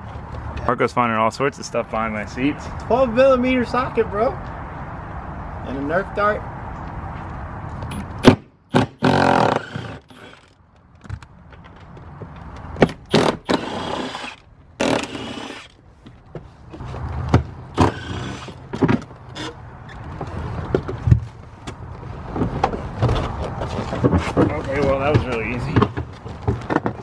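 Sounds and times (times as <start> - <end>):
cordless power tool bursts: 8.2 - 10.5, 13.1 - 15.8, 17.8 - 18.6.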